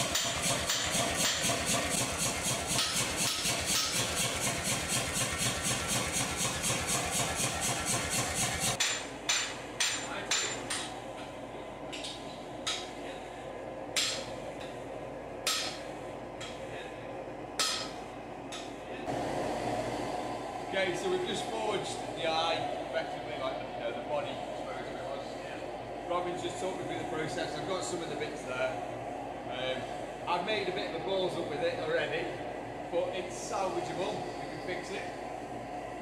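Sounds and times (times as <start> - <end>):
machine hum: 10.8 - 36.0.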